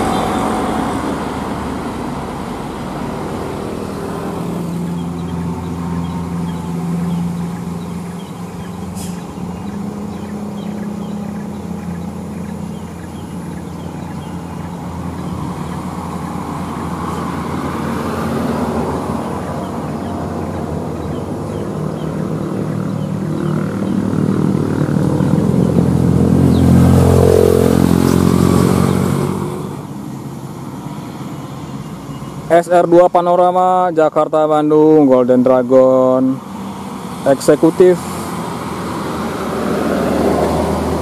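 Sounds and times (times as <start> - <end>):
truck engine working: 0.0 - 32.5
motorcycle engines: 0.0 - 41.0.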